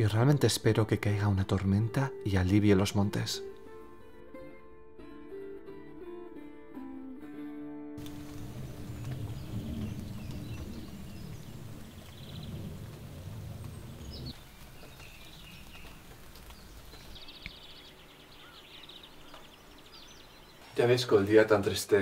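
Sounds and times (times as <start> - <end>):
low rumble: 8.0 - 14.4
birds calling and chirping: 8.0 - 21.5
bird trills: 14.0 - 20.8.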